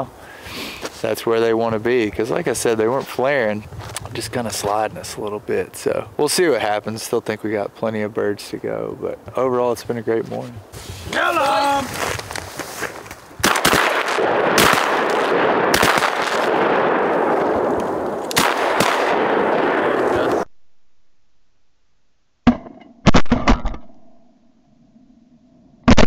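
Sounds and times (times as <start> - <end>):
sharp cracks: 11.9 - 20.5, 22.4 - 24.0, 25.8 - 26.0
shotgun shots: 13.4 - 20.4.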